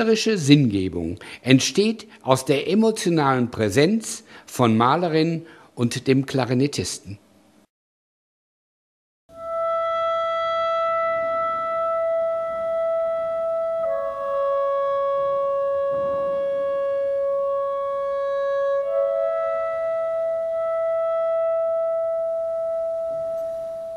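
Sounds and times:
clarinet holding long notes: 9.3s - 23.9s.

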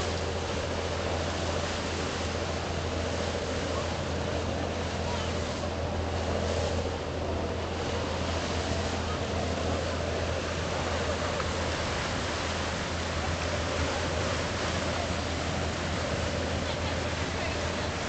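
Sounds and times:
boat engine drone: 0.0s - 18.0s
boat wake churning: 0.0s - 18.0s
choppy water rushing: 0.0s - 18.0s.

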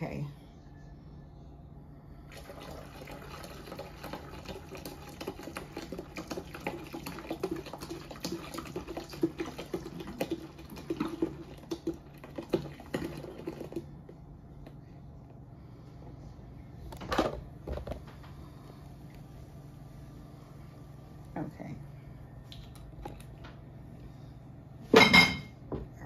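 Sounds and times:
beer splashing into a pot: 2.3s - 13.9s.

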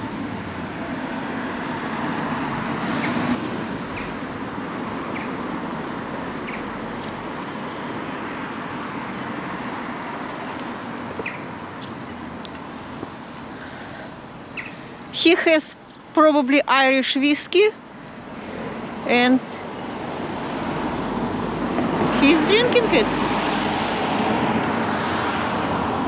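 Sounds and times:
road traffic noise: 0.0s - 26.0s
vehicle passing: 0.0s - 26.0s
small bird chirping: 5.1s - 5.4s, 6.4s - 7.3s, 11.2s - 12.3s, 14.5s - 14.9s, 15.9s - 16.2s.

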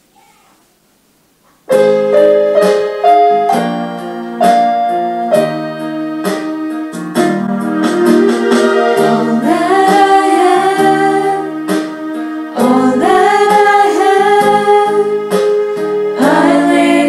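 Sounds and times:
electronic keyboard: 1.6s - 17.0s
person singing a hymn: 8.1s - 17.0s.

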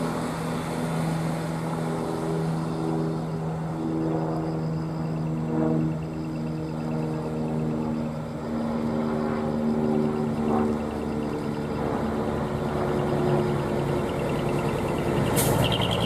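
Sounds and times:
diesel truck engine droning: 9.6s - 16.0s.

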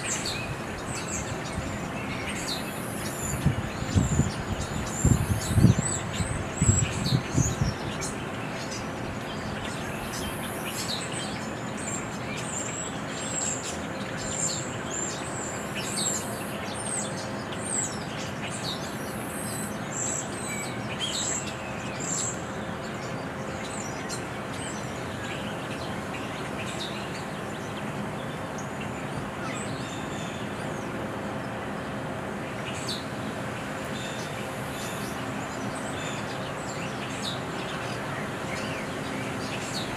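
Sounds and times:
outdoor background hiss: 0.0s - 39.9s
songbirds chirping: 0.0s - 39.9s.

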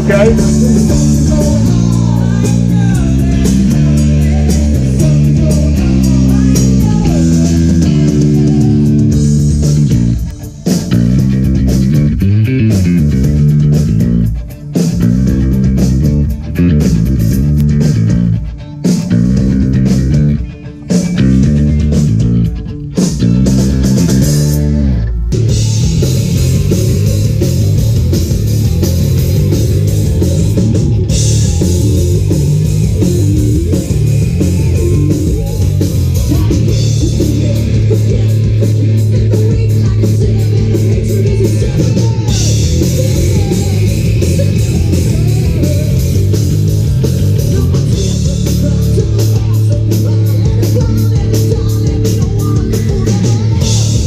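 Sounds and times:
person singing into microphone: 0.0s - 9.2s, 33.0s - 46.3s, 47.2s - 54.0s
bass guitar: 0.0s - 54.0s
distorted electric guitars: 0.0s - 54.0s
drum kit with crashing cymbals: 0.0s - 54.0s.

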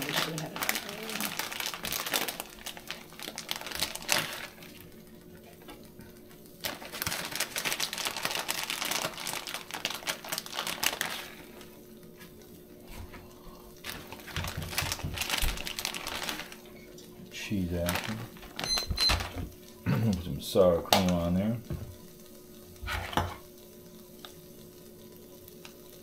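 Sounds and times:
food sizzling on a griddle: 0.0s - 26.0s.

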